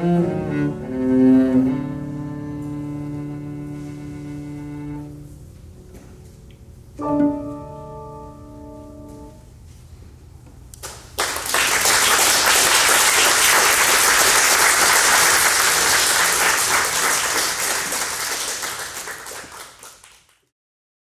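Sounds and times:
audience applauding: 10.8s - 20.5s.

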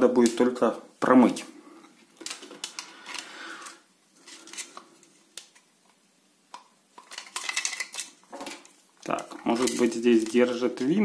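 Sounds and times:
plastic parts clicking and tapping: 6.5s - 11.0s.

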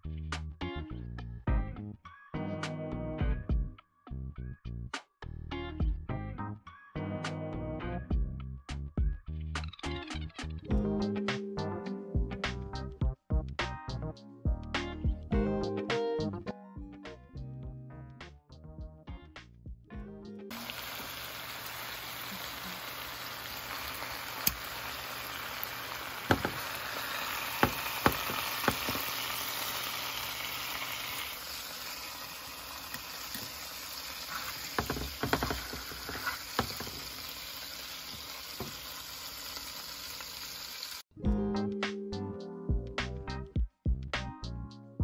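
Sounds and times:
meat sizzling in a pan: 20.5s - 41.0s.

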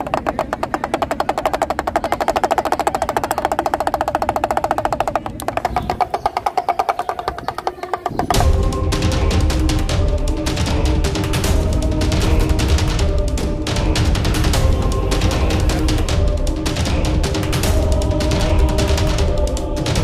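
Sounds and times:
pellet drum rattling: 0.0s - 8.6s.

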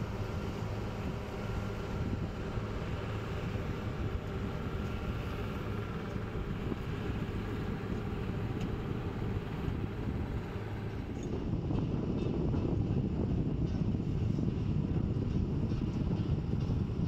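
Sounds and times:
boat engine droning: 0.0s - 12.2s
hiss of wind and water: 0.0s - 12.3s.

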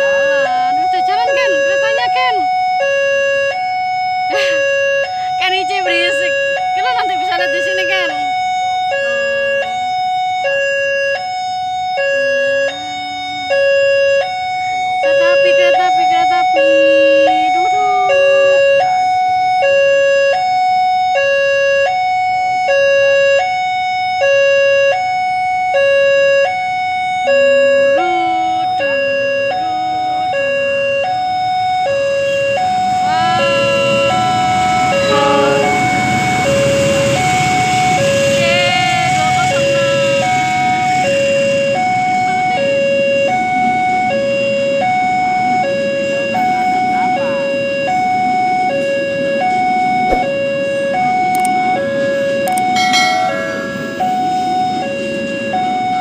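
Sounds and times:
level crossing two-tone alarm: 0.0s - 56.0s
passing train rumble: 32.0s - 56.0s.

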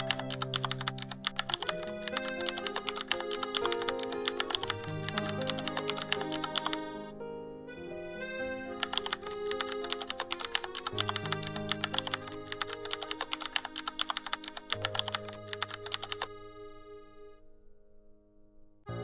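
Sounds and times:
keyboard typing clicks: 0.0s - 6.9s, 8.8s - 16.4s
background music sustained notes: 0.0s - 19.0s.

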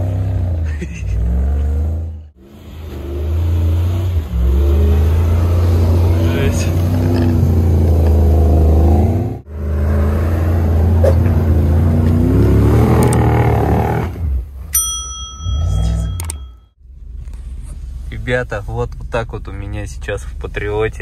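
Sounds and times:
engine revving hard: 0.0s - 14.4s.

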